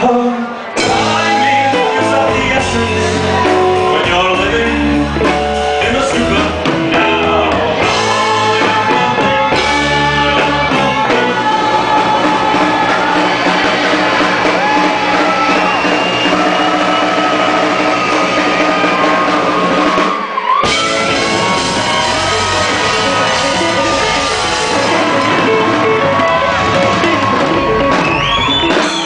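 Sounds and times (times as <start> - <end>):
man singing lead vocals: 0.0 - 13.4
drums: 0.0 - 29.0
electric guitar: 0.0 - 29.0.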